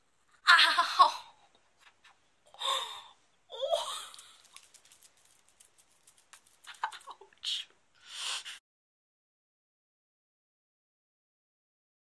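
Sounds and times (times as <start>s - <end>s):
woman laughing breathily: 2.6s - 4.5s.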